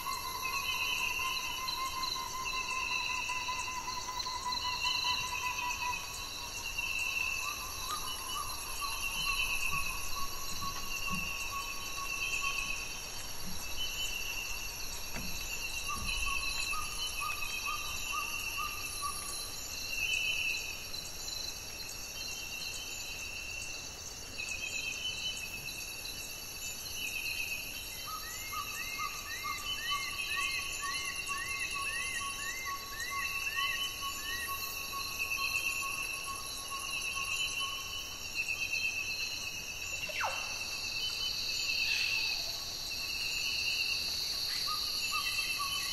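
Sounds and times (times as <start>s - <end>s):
insect chorus: 0.0s - 45.9s.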